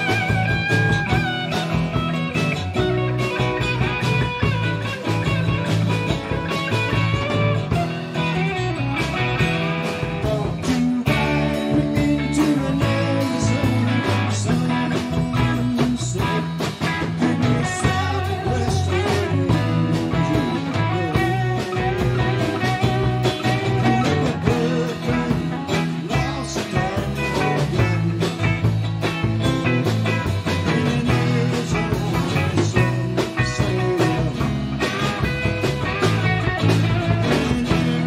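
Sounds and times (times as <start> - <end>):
bass guitar: 0.0 - 38.0
drum kit hits: 0.0 - 38.0
electric guitars: 0.0 - 38.0.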